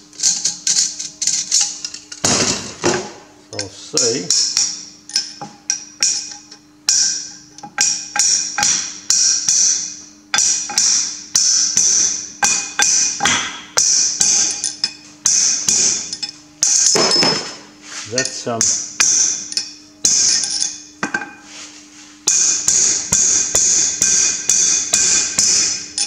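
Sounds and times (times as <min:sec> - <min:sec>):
hammer tapping on metal: 0:03.6 - 0:17.5.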